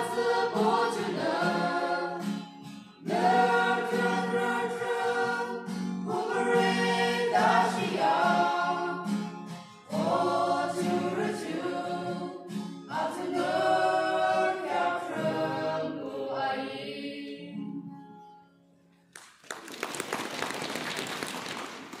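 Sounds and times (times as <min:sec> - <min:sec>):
mixed-voice choir singing: 0:00.0 - 0:18.0
applause: 0:19.1 - 0:22.0.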